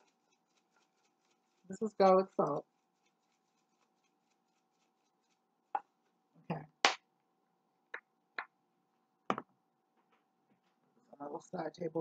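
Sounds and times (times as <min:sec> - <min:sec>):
salt shaking in a jar: 0:00.0 - 0:05.5.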